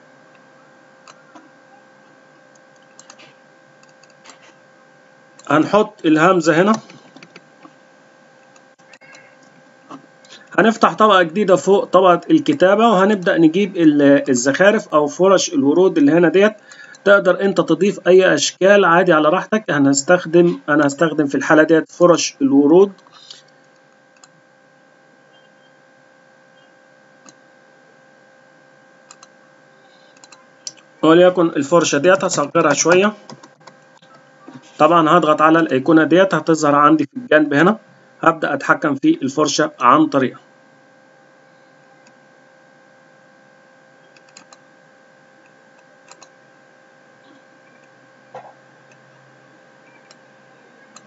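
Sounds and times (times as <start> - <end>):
faint electrical hum: 0.0 - 51.0
computer mouse clicks: 2.5 - 4.6, 6.7 - 7.8, 22.9 - 24.4, 29.1 - 29.3, 29.9 - 30.9, 32.9 - 34.6, 44.0 - 44.6, 45.4 - 46.4, 49.9 - 50.2.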